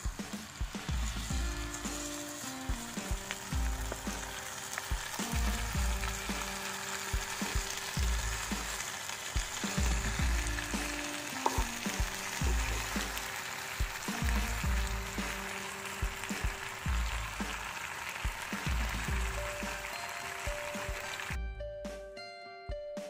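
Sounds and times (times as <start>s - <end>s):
chicken sizzling in a pan: 0.0s - 21.4s
utensils clicking against pan: 10.6s - 14.3s.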